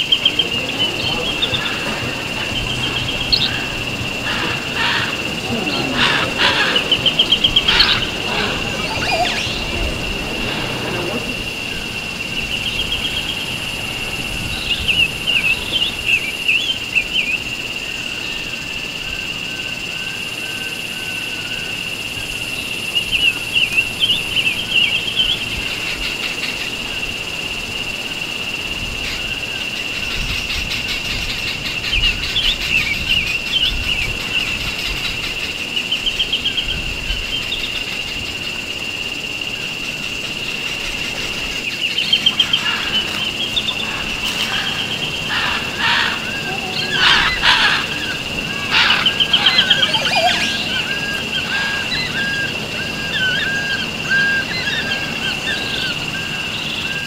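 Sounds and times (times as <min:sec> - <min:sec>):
songbird twittering: 0:00.0 - 0:17.5, 0:41.1 - 0:57.0
steady high-pitched tone: 0:05.2 - 0:12.0, 0:46.2 - 0:51.7.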